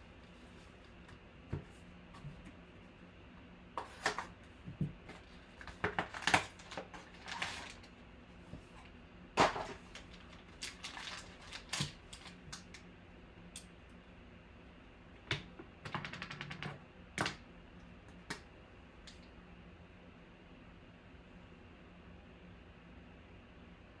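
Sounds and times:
foil packs crinkling: 0:05.2 - 0:07.9, 0:09.4 - 0:12.8.

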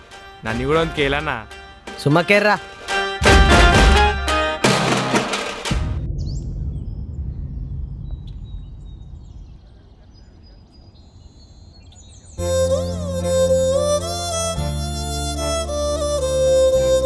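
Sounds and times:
music with sliding melody: 0:00.0 - 0:05.6, 0:12.4 - 0:17.0
low rumble: 0:05.7 - 0:11.4
faint bird chirps: 0:06.2 - 0:12.5.

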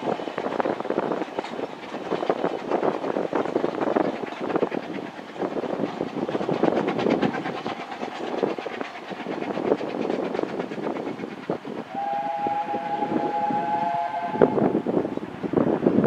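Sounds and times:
steam train wheels clattering: 0:00.0 - 0:16.0
steam whistle chord: 0:11.9 - 0:14.8.

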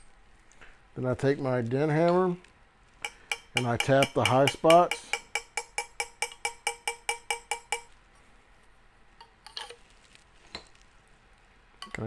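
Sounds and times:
hammer tapping brass: 0:03.1 - 0:07.9.

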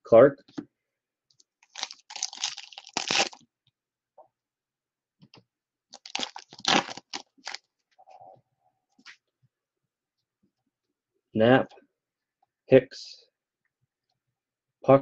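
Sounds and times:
foil wrapper crinkling and tearing: 0:01.6 - 0:03.4, 0:05.9 - 0:07.6.

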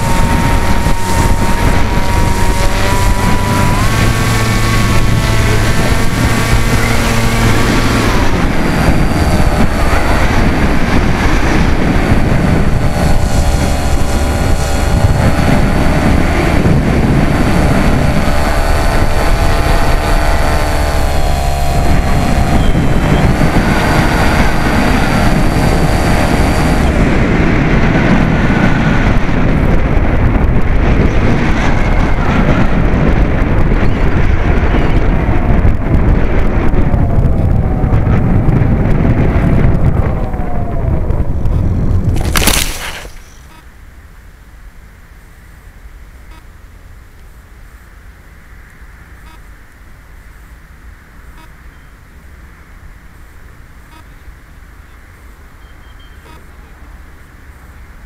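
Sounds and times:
model plane motor whine: 0:00.0 - 0:43.7
wind rushing across microphone: 0:00.0 - 0:58.0.

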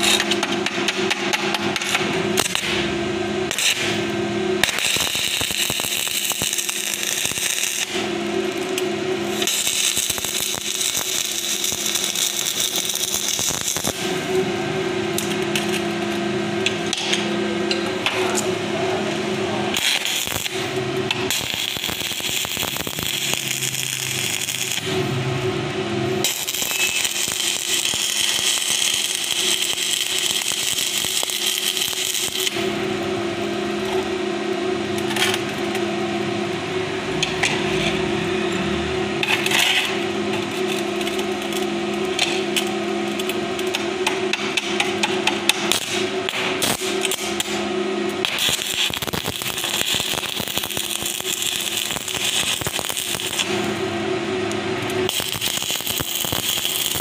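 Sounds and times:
welding arc crackling and hissing: 0:00.0 - 0:57.0
low hum: 0:31.2 - 0:48.7.

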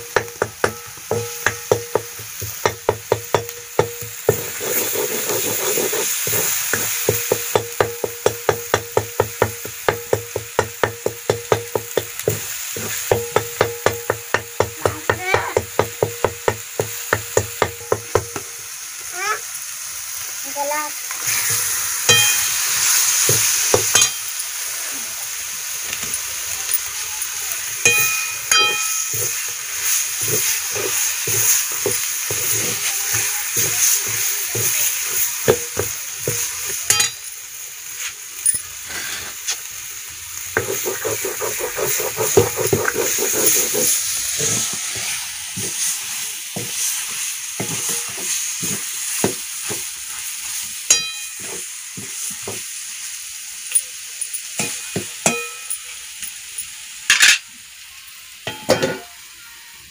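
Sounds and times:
chicken sizzling in hot oil: 0:00.0 - 0:59.9
spoon scraping pan: 0:00.2 - 0:07.6, 0:27.8 - 0:37.2, 0:40.6 - 0:52.5
metal utensil clinks: 0:22.1 - 0:22.6, 0:23.9 - 0:24.4, 0:27.9 - 0:29.4, 0:36.9 - 0:37.4, 0:50.9 - 0:51.6, 0:53.7 - 0:57.4.

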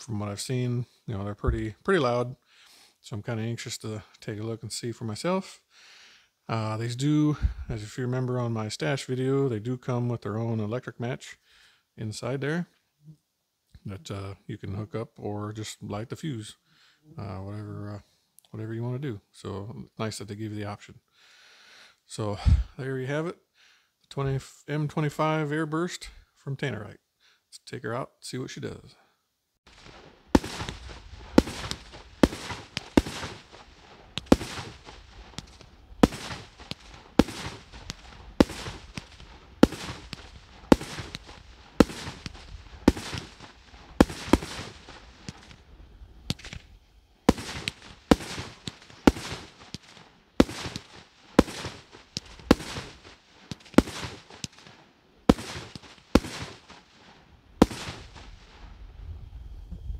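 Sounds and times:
loud firework bangs with echo: 0:29.7 - 0:45.6, 0:47.3 - 0:54.7, 0:55.3 - 0:56.8, 0:57.6 - 0:58.3.

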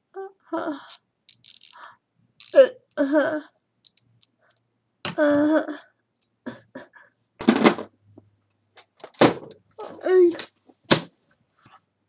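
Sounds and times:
person speaking: 0:09.8 - 0:10.6.

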